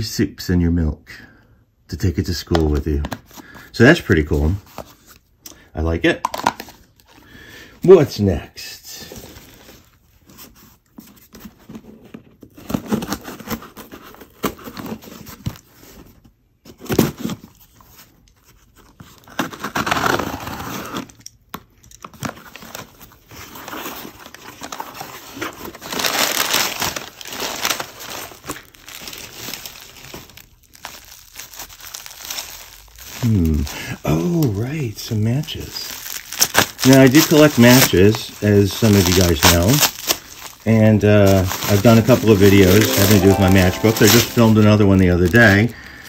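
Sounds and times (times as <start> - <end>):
cardboard box torn open: 19.1 - 21.3, 22.1 - 31.0
bubble wrap crinkling: 22.0 - 46.0.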